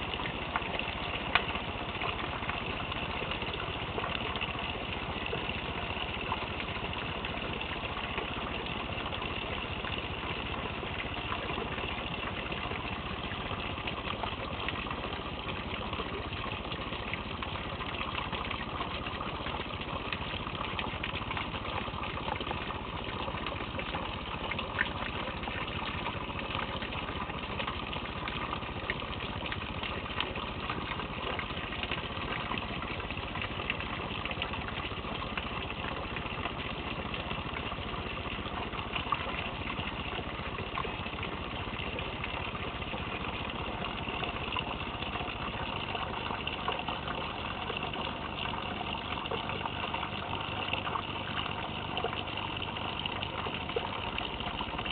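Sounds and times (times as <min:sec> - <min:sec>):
raindrops clicking nearby: 0:00.2 - 0:02.6.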